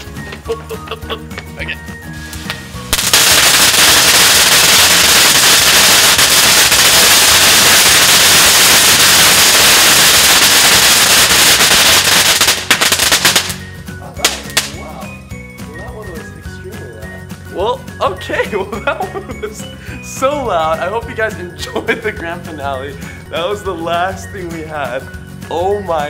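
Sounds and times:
firecracker roll crackling: 2.2 - 14.9.

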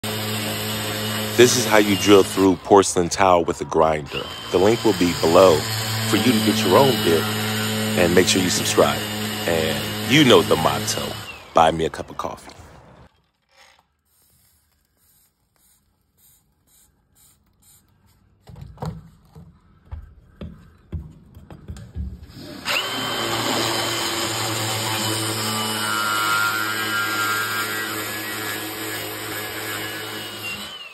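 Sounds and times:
angle grinder grinding tile: 0.0 - 12.4, 22.3 - 30.9.

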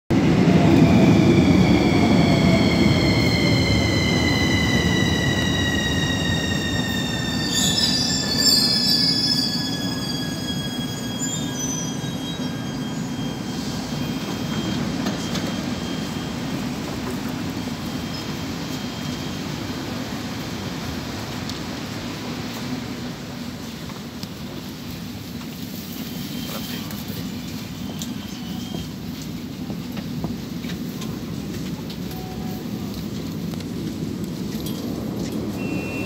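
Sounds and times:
high-pitched squeal: 0.5 - 19.7.

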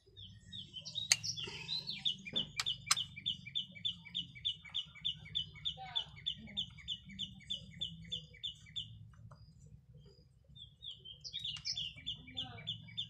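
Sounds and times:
bird chirping: 0.0 - 13.0.

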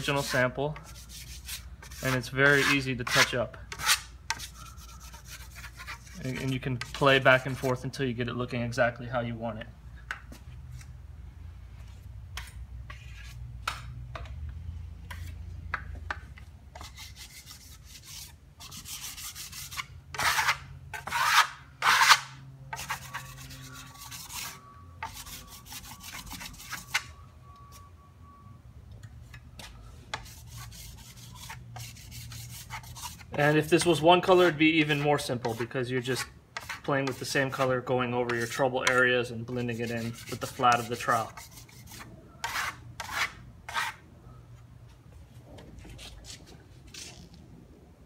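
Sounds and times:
trowel scraping plaster: 0.0 - 7.8, 16.8 - 27.1, 30.2 - 44.0
low steady hum: 0.0 - 48.0.

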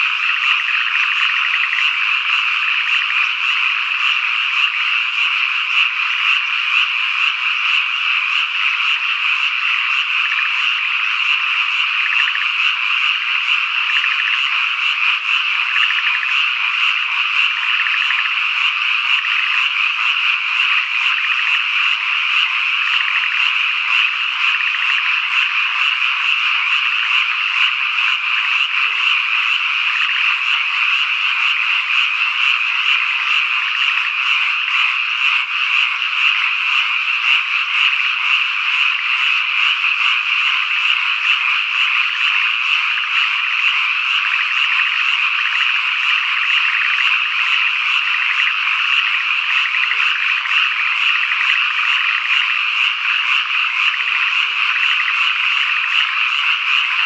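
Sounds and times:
chorus of frogs croaking: 0.0 - 57.0.

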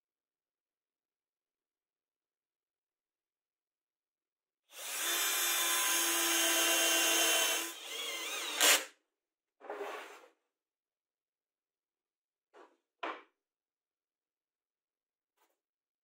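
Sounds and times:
cordless drill drilling into wood: 4.7 - 8.9.

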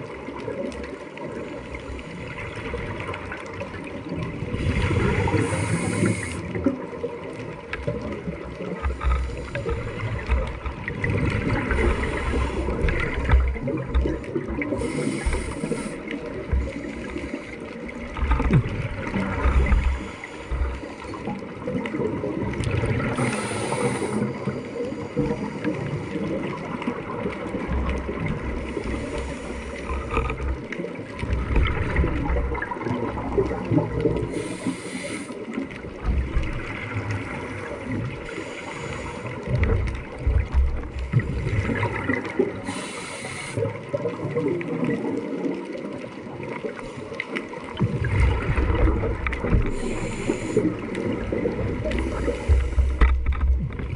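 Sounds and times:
low underwater rumble: 0.0 - 53.9
bubbles bursting and gurgling: 2.3 - 24.6, 25.2 - 34.7, 35.5 - 38.3, 39.4 - 42.8, 47.4 - 53.9
scuba diver breathing through regulator: 4.6 - 6.6, 11.5 - 13.0, 14.4 - 17.7, 19.6 - 21.4, 23.0 - 26.2, 28.7 - 30.4, 34.2 - 35.6, 37.3 - 39.5, 42.6 - 43.8, 49.6 - 53.2.

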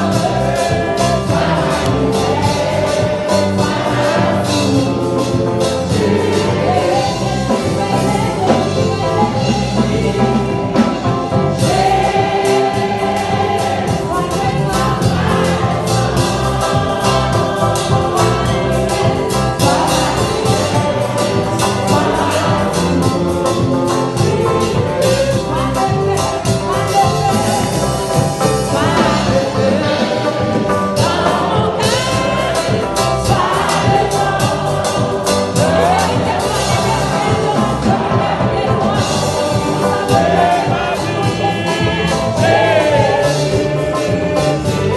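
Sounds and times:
congregation singing gospel song: 0.0 - 44.9.

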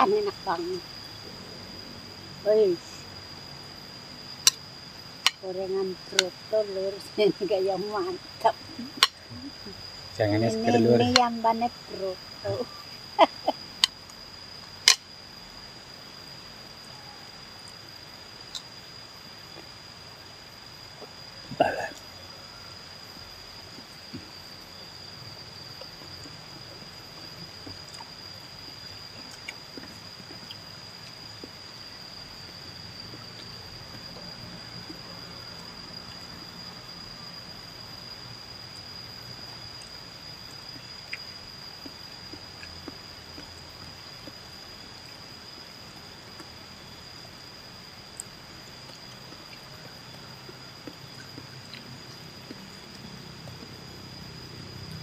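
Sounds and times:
background hiss: 0.0 - 55.0
faint chewing: 29.2 - 31.6, 40.7 - 44.4, 48.2 - 53.8.

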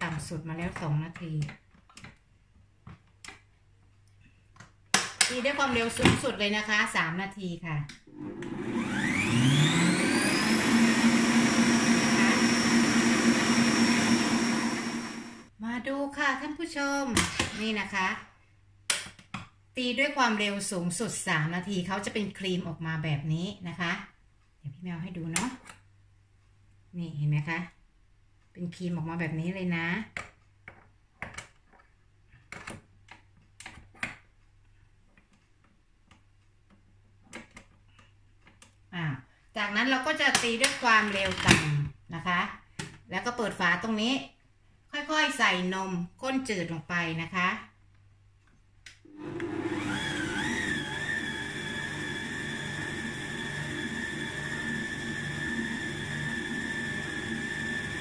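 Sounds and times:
stand mixer motor whine: 8.1 - 15.5, 49.1 - 58.0.

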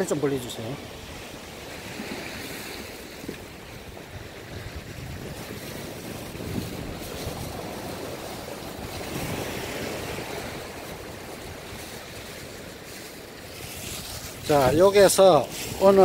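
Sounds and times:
waves washing against rocks: 0.0 - 16.0
wind buffeting microphone: 0.7 - 16.0.

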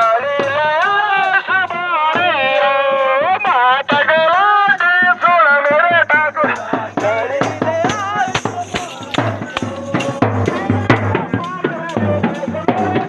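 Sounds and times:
hand drum beats: 0.0 - 13.0
person singing or chanting: 0.0 - 13.0
rattling percussion: 0.0 - 13.0.

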